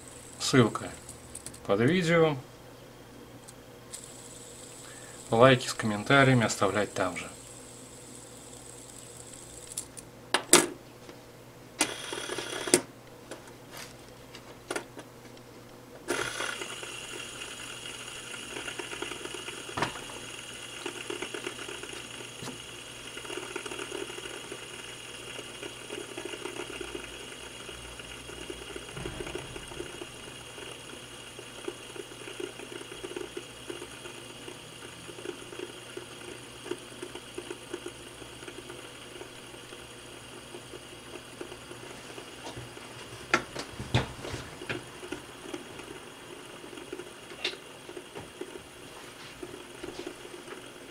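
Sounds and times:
fidget spinner clicks: 0.0 - 2.0, 3.4 - 10.1, 16.1 - 41.8
fidget spinner whirring: 0.0 - 2.0, 3.9 - 10.0, 11.8 - 12.9, 16.1 - 43.4, 44.6 - 50.9.

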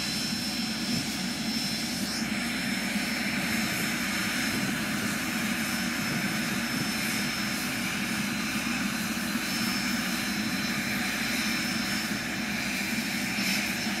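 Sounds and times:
propeller airplane engine droning: 0.0 - 14.0.

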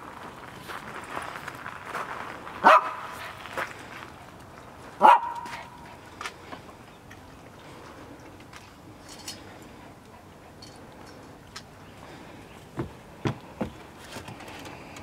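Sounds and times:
small dog barking: 2.6 - 3.2, 5.0 - 5.8.

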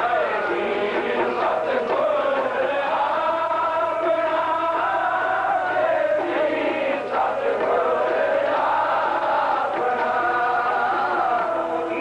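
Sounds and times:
harmonium: 0.0 - 12.0
men singing together: 0.0 - 12.0.

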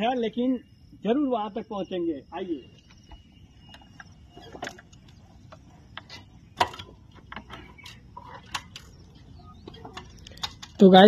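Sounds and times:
motorcycle mechanical clicks: 3.7 - 11.0.

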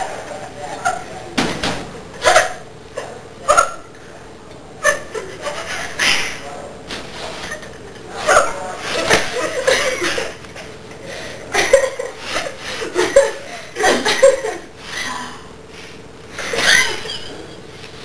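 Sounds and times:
person laughing: 11.5 - 15.3, 16.4 - 17.6.

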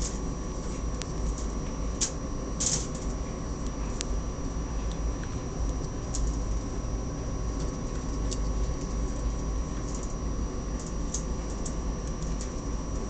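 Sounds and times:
rat claws scratching on wire cage: 0.0 - 3.2, 7.6 - 13.0
faint electronic whine: 0.0 - 13.0
steady low rumble: 0.0 - 13.0.

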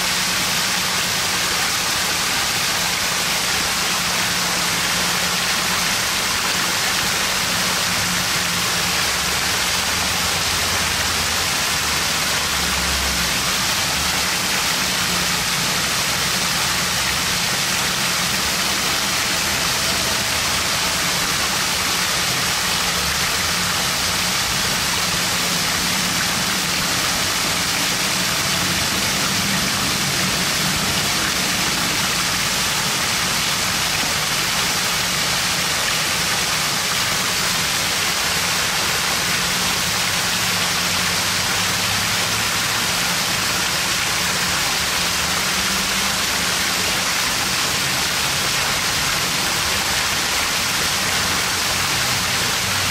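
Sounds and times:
fountain water pouring and splashing: 0.0 - 52.9.

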